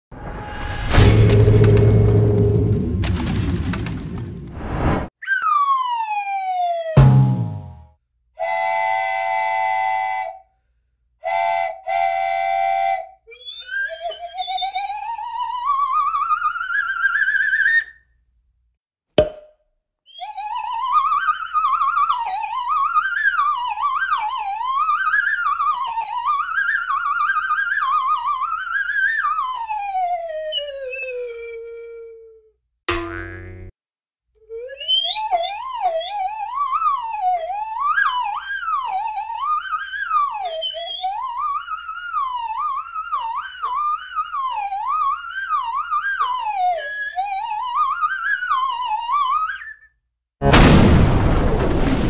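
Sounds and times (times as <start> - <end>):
crash: 0.1 - 5.1, 7.0 - 7.8, 50.4 - 52.0
falling whistle: 5.2 - 7.8, 11.2 - 17.7, 20.1 - 32.2, 34.5 - 49.9
warbling whistle: 5.2 - 7.8, 20.1 - 32.2, 34.5 - 49.9
short blip: 7.0 - 7.9
rising slide whistle: 26.7 - 32.2, 34.5 - 49.9.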